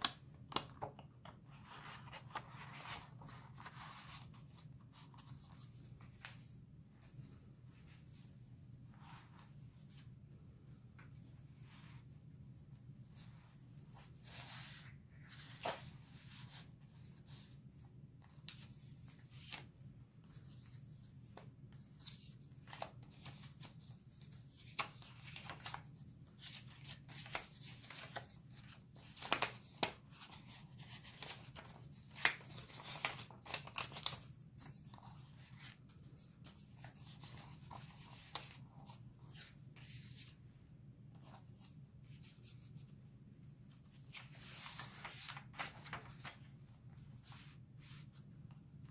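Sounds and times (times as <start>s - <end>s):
paper rustling and scraping: 43.7s - 48.2s.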